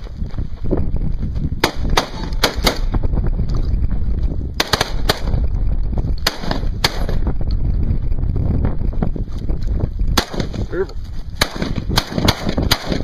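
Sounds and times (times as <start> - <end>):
wind rumble on microphone: 0.0 - 13.0
sharp cracks: 1.6 - 3.0, 4.6 - 5.5, 6.1 - 7.6, 10.1 - 10.8, 11.4 - 13.0.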